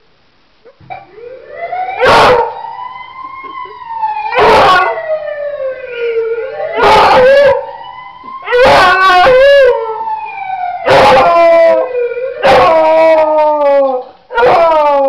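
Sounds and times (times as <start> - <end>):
ambulance siren wailing: 1.0 - 15.0
dog howling: 2.0 - 2.6, 4.3 - 5.1, 5.9 - 7.7, 8.4 - 10.0, 10.8 - 15.0.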